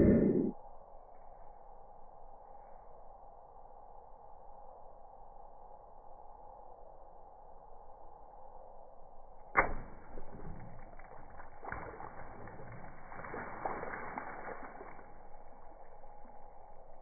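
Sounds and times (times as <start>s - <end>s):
water balloon popping: 9.6s - 15.6s
water splashing on plastic bucket: 9.6s - 17.0s.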